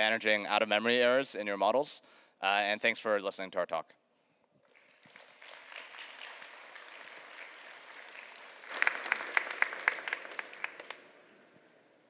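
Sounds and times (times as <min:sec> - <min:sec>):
sharp individual claps: 0:04.6 - 0:11.3
audience applauding: 0:04.6 - 0:11.5.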